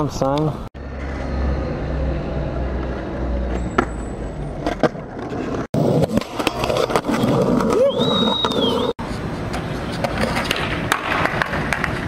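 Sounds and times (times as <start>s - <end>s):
skateboard wheels rolling on asphalt: 0.4s - 12.0s
skateboard clacking: 6.0s - 12.0s.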